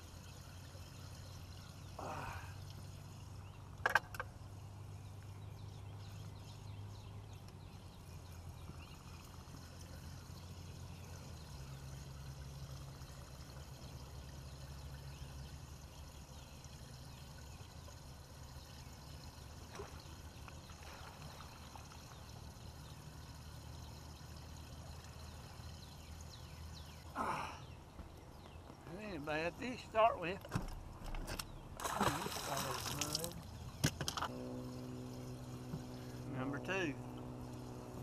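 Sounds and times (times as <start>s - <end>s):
water trickling and splashing: 0.0s - 3.8s, 4.4s - 27.1s, 31.6s - 38.0s
steady low hum: 0.0s - 38.0s
faint ticks: 2.6s - 3.0s, 7.4s - 7.7s.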